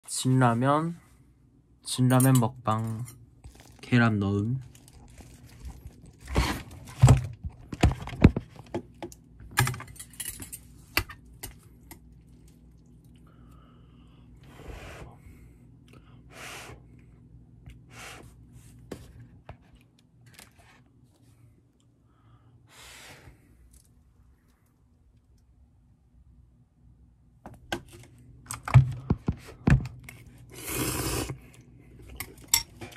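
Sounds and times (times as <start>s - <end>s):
clicks and knocks of utensils: 9.0s - 11.6s
person blowing and slurping noodles: 30.4s - 31.5s.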